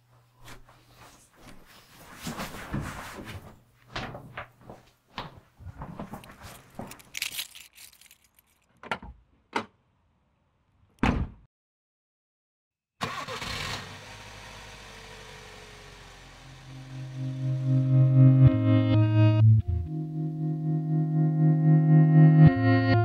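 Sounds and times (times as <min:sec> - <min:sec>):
clicks and rustling of handling: 0:06.0 - 0:09.0.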